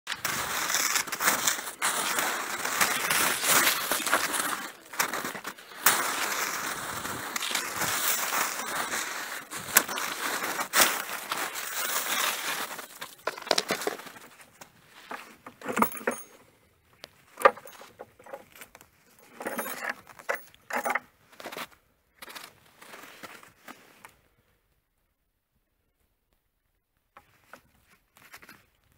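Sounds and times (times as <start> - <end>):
footsteps crunching in snow: 0.1 - 16.4, 21.3 - 24.0
clothing rustle: 0.1 - 24.5.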